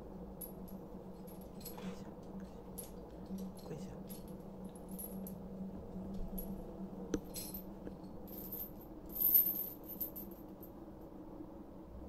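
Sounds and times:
steel chains clinking and rattling: 0.4 - 5.5, 6.2 - 6.6, 7.2 - 10.6.

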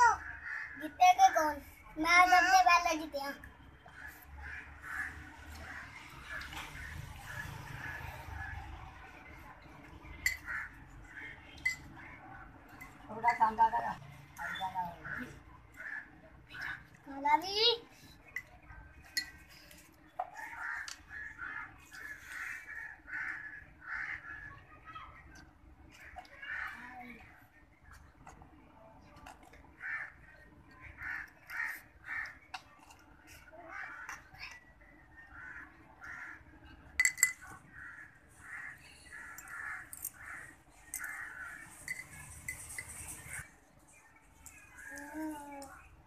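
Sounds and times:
crow cawing: 0.0 - 1.0, 4.0 - 6.0, 10.3 - 11.3, 14.4 - 16.7, 20.4 - 24.5, 26.0 - 26.9, 29.8 - 30.3, 30.9 - 32.4, 33.7 - 34.3, 35.3 - 36.4, 37.7 - 41.7.

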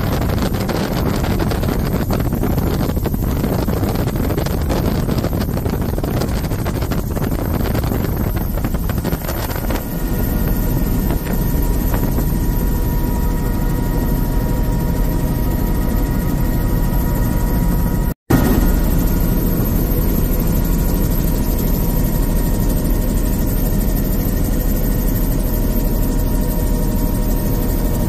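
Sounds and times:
wind rushing at the microphone: 0.0 - 16.2
helicopter rotor and engine noise: 0.0 - 28.0
steady high whine: 0.0 - 28.0.

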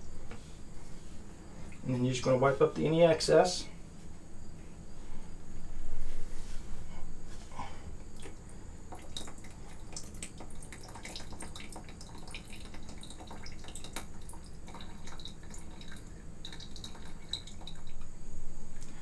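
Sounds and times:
water dripping into a dish: 8.2 - 18.2.

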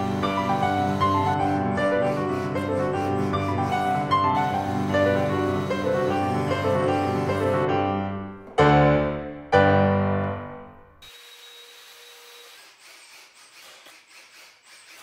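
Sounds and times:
cordless drill driving screw: 0.0 - 7.5, 11.0 - 15.0
piano music: 0.0 - 11.0.

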